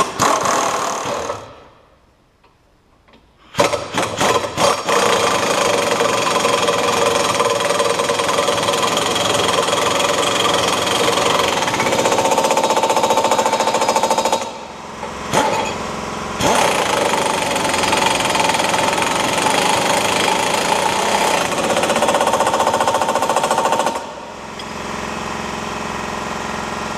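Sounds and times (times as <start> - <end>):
impact wrench hammering: 3.5 - 24.8.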